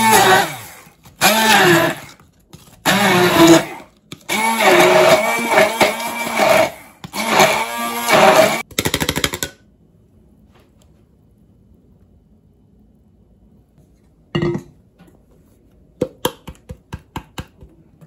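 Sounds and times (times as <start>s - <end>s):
immersion blender pureeing: 0.0s - 2.2s, 2.8s - 8.7s.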